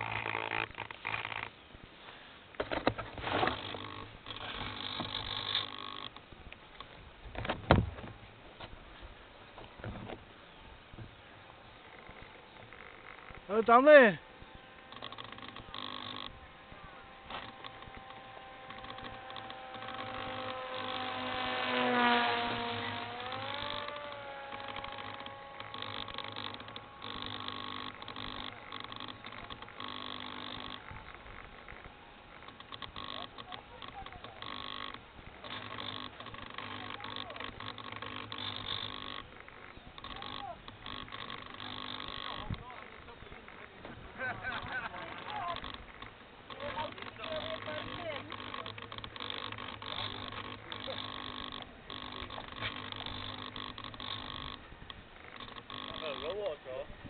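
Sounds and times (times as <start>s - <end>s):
handling rustling and scraping: 0.0s - 5.9s
model aircraft motor whining: 0.0s - 7.6s, 10.3s - 57.0s.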